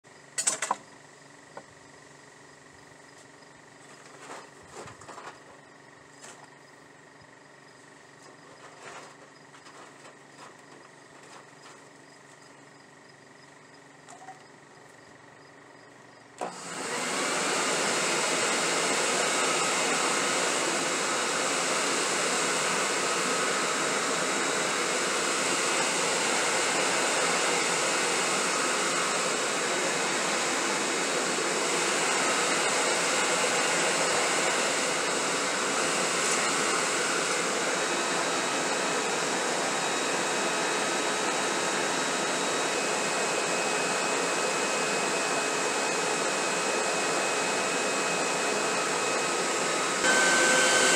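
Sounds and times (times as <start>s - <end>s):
electric leaf blower rushing air: 16.4s - 50.9s.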